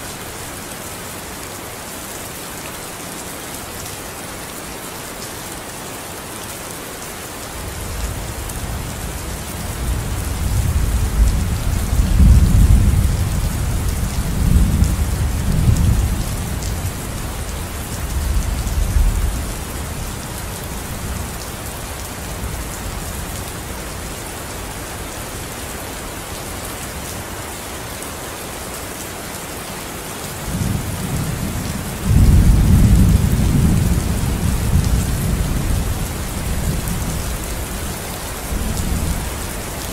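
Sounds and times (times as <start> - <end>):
low rolling thunder: 9.8 - 17.0, 30.5 - 37.2.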